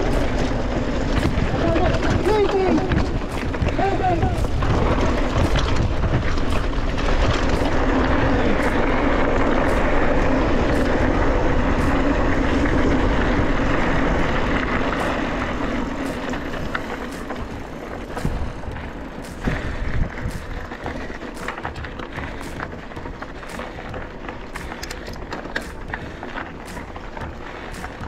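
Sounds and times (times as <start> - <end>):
wind on camera microphone: 0.0 - 21.2
bike tyres rolling over dirt: 0.0 - 28.0.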